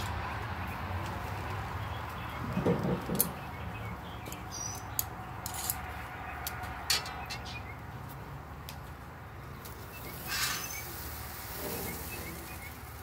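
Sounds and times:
faint bird chirping: 9.5 - 13.0
vegetables sizzling on a grill: 10.0 - 13.0.

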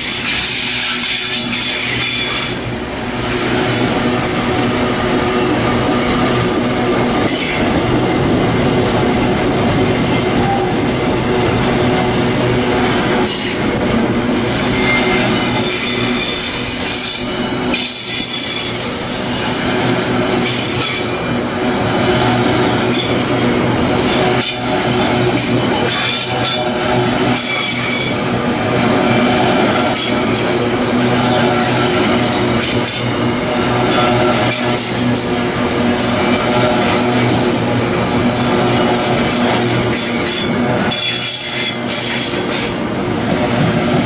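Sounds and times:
train wheels rumbling on rail: 0.0 - 44.0
high-pitched wheel squeal: 14.4 - 21.2.

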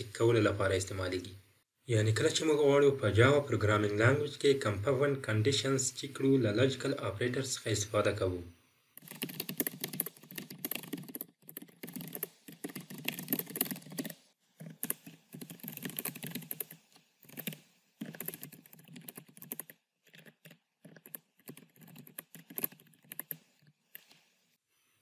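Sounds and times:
computer keyboard typing: 9.0 - 24.1.

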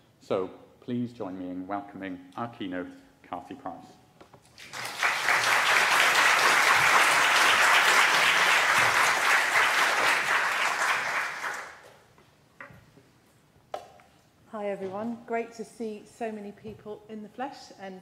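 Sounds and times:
audience applauding: 4.6 - 11.9.

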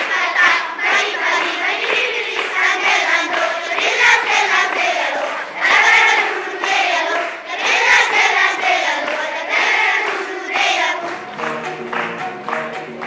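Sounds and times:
children chanting in unison: 0.0 - 11.1
instrumental music: 7.6 - 13.0.

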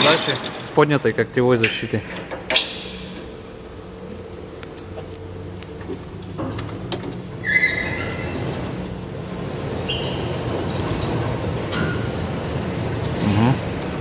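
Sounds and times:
short metallic squeals: 7.4 - 12.2.

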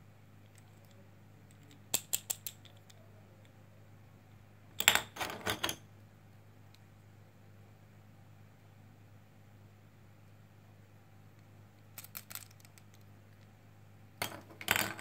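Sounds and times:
plastic building pieces clicking: 0.5 - 2.9, 12.0 - 13.1.

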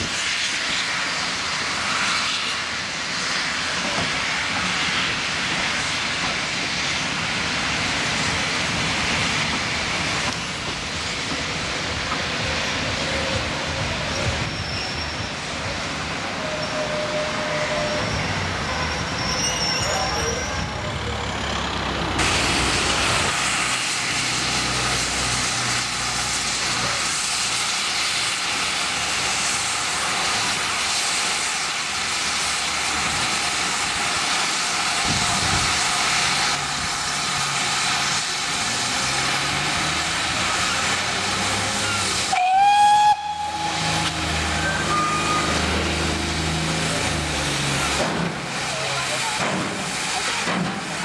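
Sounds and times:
locomotive rumble: 0.0 - 51.0
steam locomotive hissing: 0.0 - 51.0
steam whistle blast: 41.8 - 46.0.

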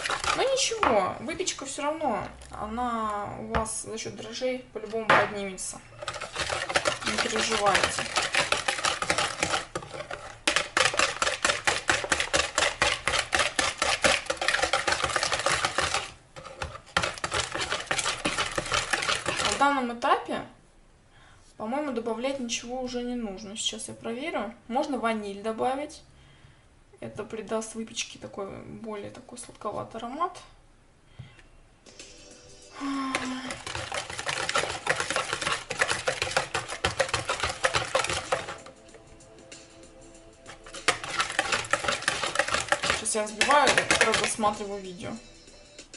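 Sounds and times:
whisk clicking against bowl: 0.0 - 1.0, 6.0 - 19.7, 33.1 - 38.7, 40.5 - 44.8.

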